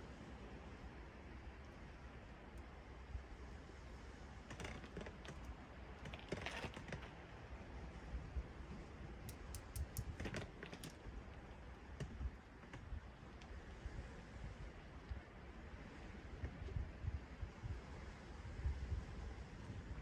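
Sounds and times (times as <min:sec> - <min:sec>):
low steady rumble: 0:00.0 - 0:20.0
light clicks and clatters: 0:04.5 - 0:07.3, 0:09.2 - 0:11.1
sharp clicks: 0:09.3 - 0:11.0.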